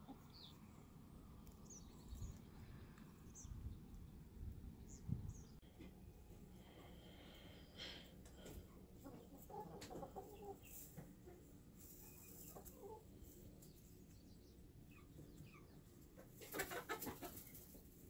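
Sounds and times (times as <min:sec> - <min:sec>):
hen clucking softly: 0:09.0 - 0:13.4, 0:14.9 - 0:17.8.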